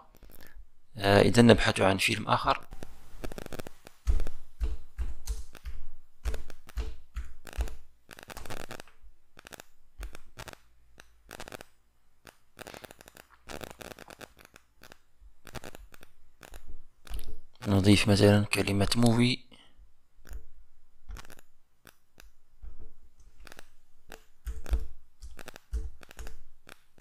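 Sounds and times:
dull knocks: 4.0s - 7.7s
mouse clicks: 23.4s - 27.0s.

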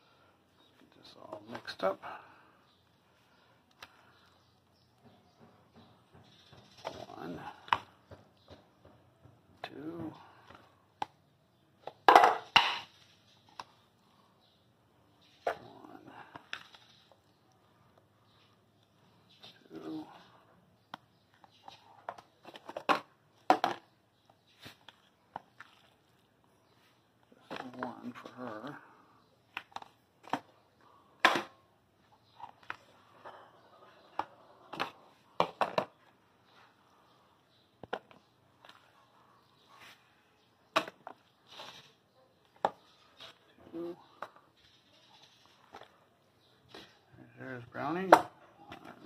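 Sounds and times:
plastic container knocking metal bowls: 12.0s - 12.9s.

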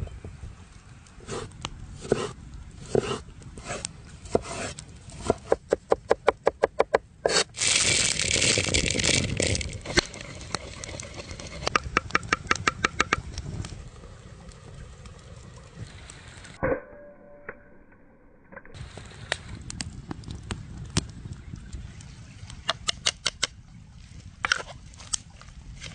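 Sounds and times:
peppercorns spilling onto wooden board: 7.6s - 11.6s.

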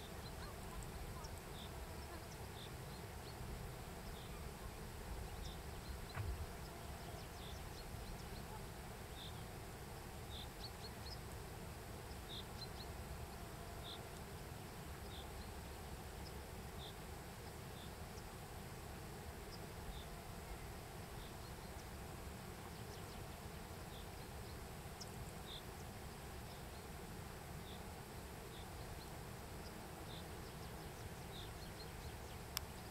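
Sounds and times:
brief knock: 6.1s - 6.4s.

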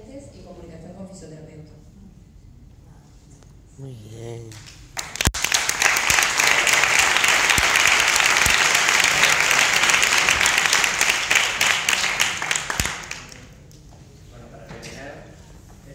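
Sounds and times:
audience applauding: 4.5s - 13.6s.

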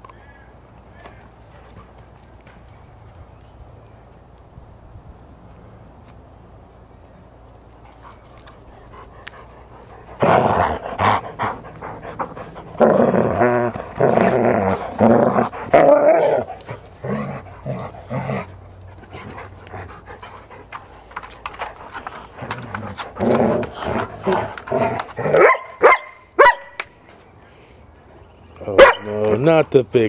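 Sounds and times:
dog growling and grumbling: 10.1s - 18.6s, 22.1s - 25.4s.

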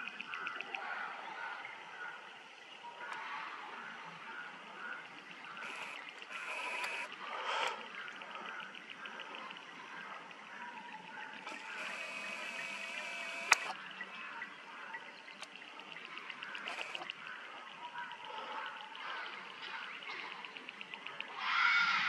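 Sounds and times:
fast steady ticking: 5.6s - 10.5s, 11.3s - 13.8s
sharp click: 11.4s - 13.8s.

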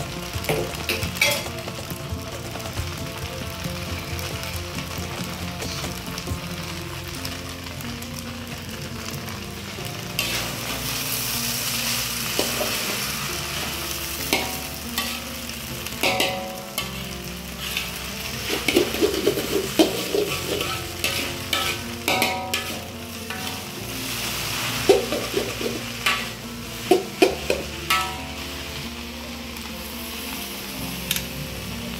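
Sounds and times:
food sizzling in a pan: 0.0s - 31.9s
utensil scraping and clanking on pan: 0.4s - 1.8s, 10.2s - 28.5s.

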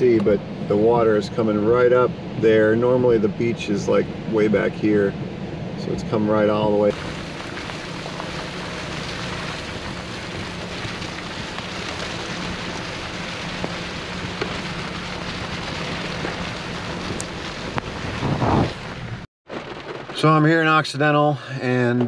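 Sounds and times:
low car engine hum: 0.0s - 20.4s
rain and tyres hissing on wet road: 6.9s - 20.3s.

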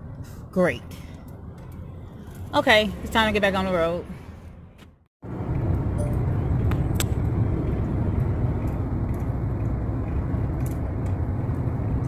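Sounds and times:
car cabin road and engine rumble: 0.0s - 12.0s.

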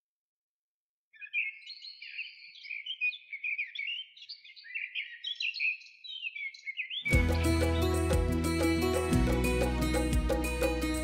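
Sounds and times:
small birds chirping: 1.1s - 9.0s.

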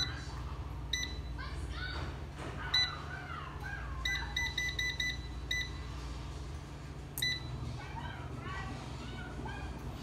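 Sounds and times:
control panel beeping: 0.9s - 1.4s, 4.0s - 5.8s, 7.2s - 7.6s.

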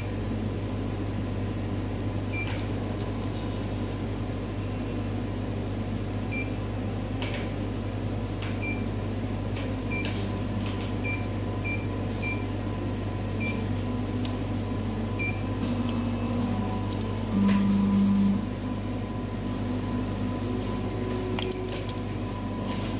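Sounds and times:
steady machine hum: 0.0s - 22.9s
loud low hum: 12.7s - 22.7s.

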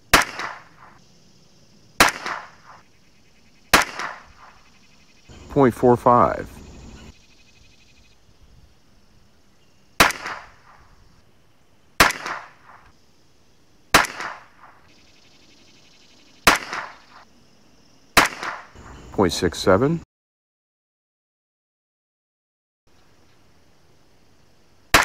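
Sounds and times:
rifle shots: 0.1s - 1.0s, 2.0s - 2.8s, 3.7s - 4.6s, 10.0s - 10.9s, 12.0s - 12.9s, 13.9s - 14.9s, 16.5s - 17.2s, 18.2s - 18.8s.

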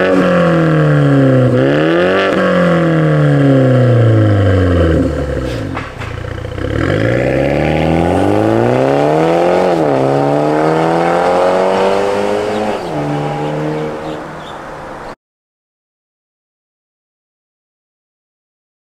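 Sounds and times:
car engine accelerating hard: 0.0s - 15.1s.

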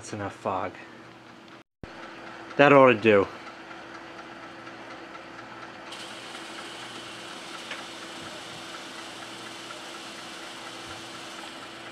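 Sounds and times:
machine hum: 5.9s - 11.9s.

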